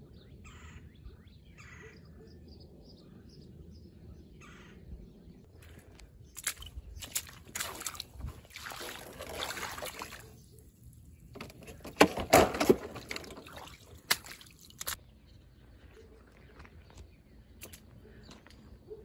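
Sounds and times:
footsteps splashing through puddles: 0:05.6 - 0:10.4, 0:12.5 - 0:15.0.

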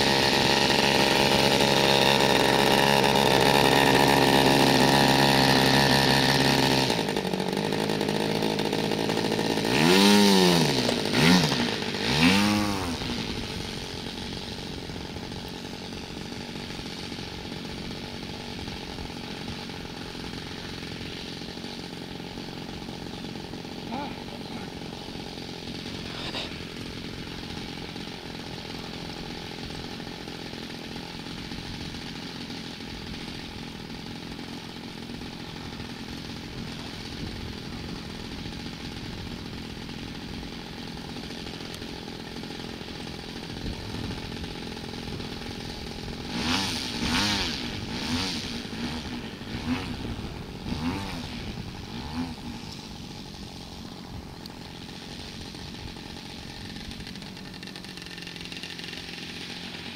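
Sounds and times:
model airplane engine revving: 0:00.0 - 0:59.9.

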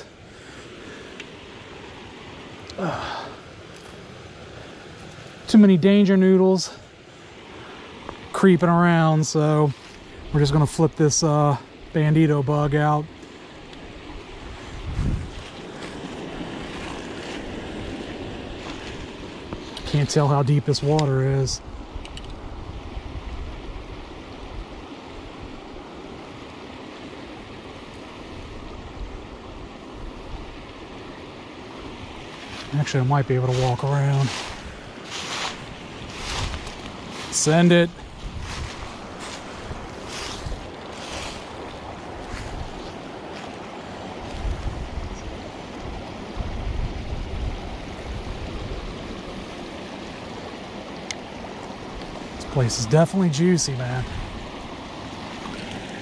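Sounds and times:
running water rushing: 0:00.0 - 0:56.0
wind rumbling on microphone: 0:13.6 - 0:56.0
low rumble on microphone: 0:14.4 - 0:17.0.

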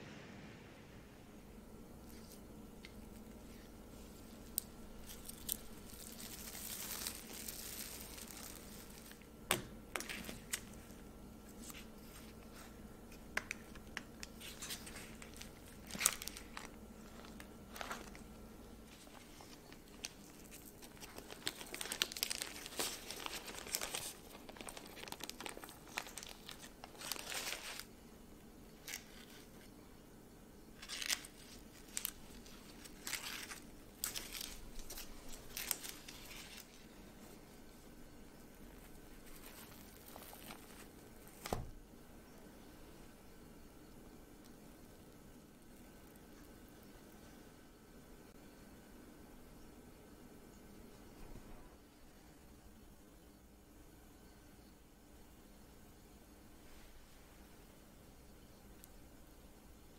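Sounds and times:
cling film crinkling: 0:02.0 - 0:28.0, 0:28.7 - 0:29.8, 0:30.8 - 0:37.5, 0:38.1 - 0:41.6
parchment paper rustling: 0:02.0 - 0:28.0, 0:30.8 - 0:41.7.

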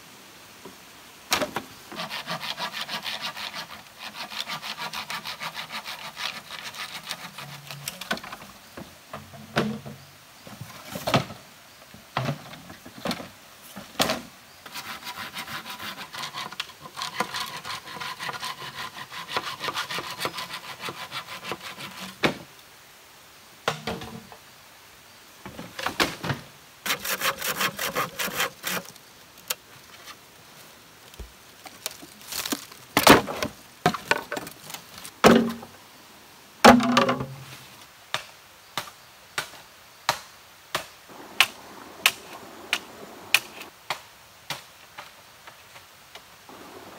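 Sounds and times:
hand saw rasping through bamboo: 0:01.9 - 0:08.0, 0:14.7 - 0:22.2, 0:26.8 - 0:29.0
bamboo knocks: 0:23.6 - 0:24.2, 0:36.6 - 0:37.4.

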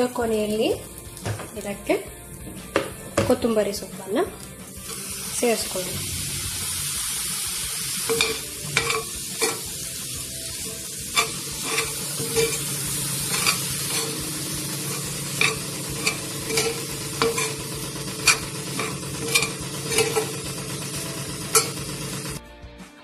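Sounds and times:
eggs sizzling in a hot pan: 0:00.0 - 0:22.4
metal spatula scraping a pan: 0:08.0 - 0:09.8, 0:10.6 - 0:20.8, 0:21.4 - 0:22.0.

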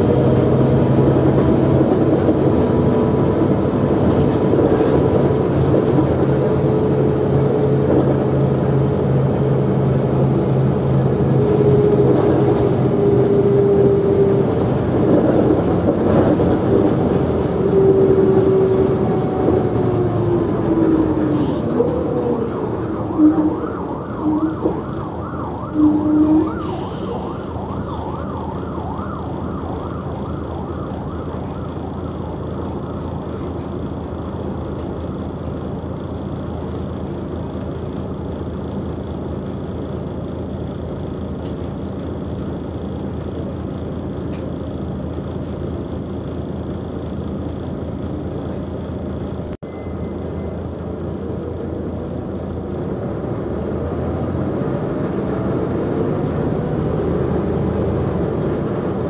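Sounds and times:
bus engine idling with whine: 0:00.0 - 0:59.0
short loud tone: 0:49.6 - 0:50.6.

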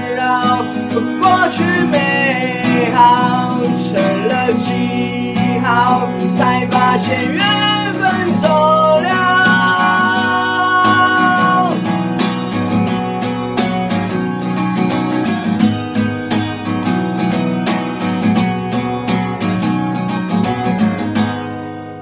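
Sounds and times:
man singing long note: 0:00.0 - 0:11.9
acoustic guitar strumming: 0:00.0 - 0:22.0.

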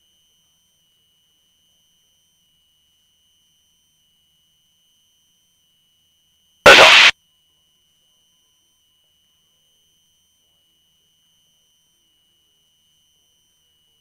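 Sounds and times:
loud burst of noise: 0:06.7 - 0:07.1.

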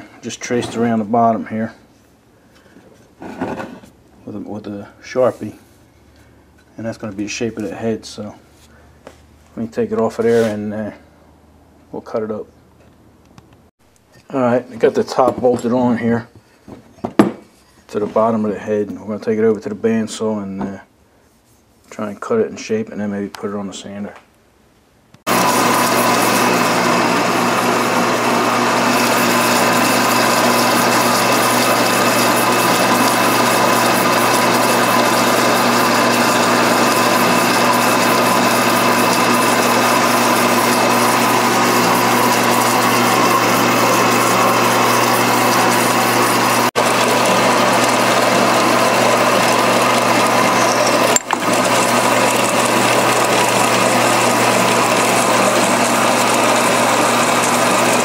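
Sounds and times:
bandsaw cutting metal: 0:25.3 - 0:58.0.

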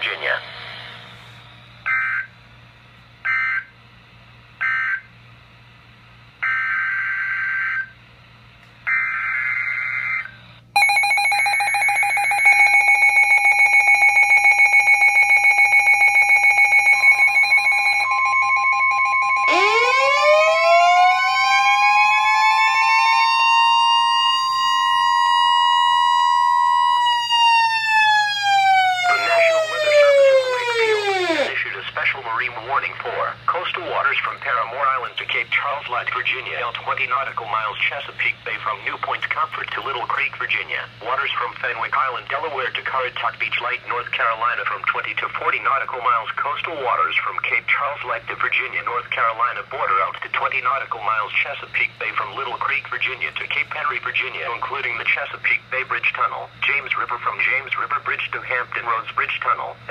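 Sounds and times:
siren wail: 0:06.4 - 0:07.9, 0:08.9 - 0:31.6
steady attention tone: 0:10.8 - 0:40.1.

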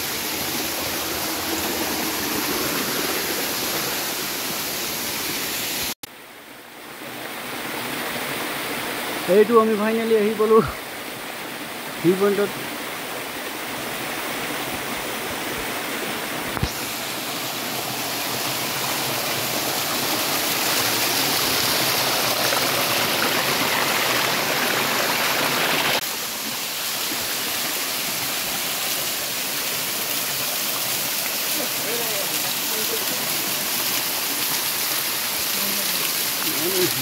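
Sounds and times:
waterfall splashing onto stone: 0:16.6 - 0:37.0.

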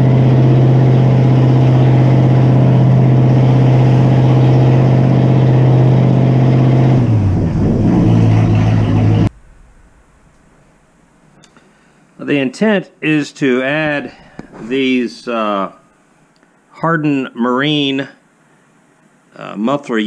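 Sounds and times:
boat engine running loud: 0:00.0 - 0:09.4.

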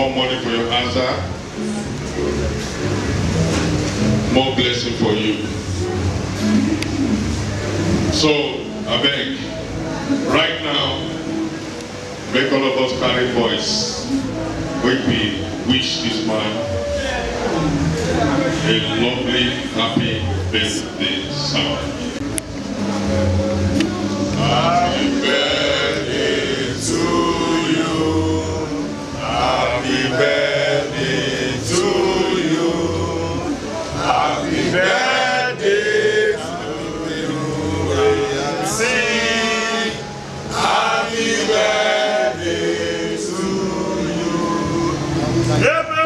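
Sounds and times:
music with deep bass: 0:00.0 - 0:41.5
group of people singing: 0:22.2 - 0:45.6.

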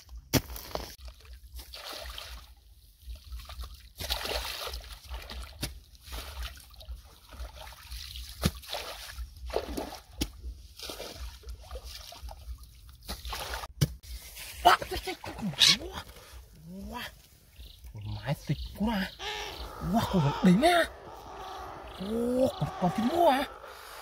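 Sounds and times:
river water sloshing and trickling: 0:01.0 - 0:13.8.

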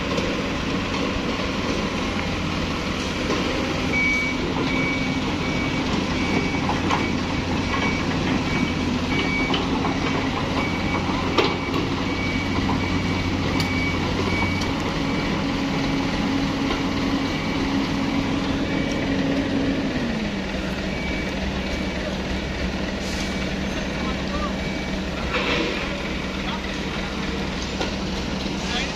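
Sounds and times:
excavator diesel engine running: 0:00.0 - 0:28.9
high warning beeps: 0:03.9 - 0:15.8, 0:17.2 - 0:19.3, 0:20.8 - 0:22.7, 0:23.3 - 0:25.3.

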